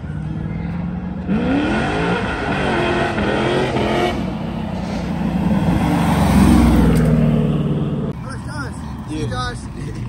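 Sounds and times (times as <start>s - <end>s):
car engine accelerating hard: 1.1s - 4.4s.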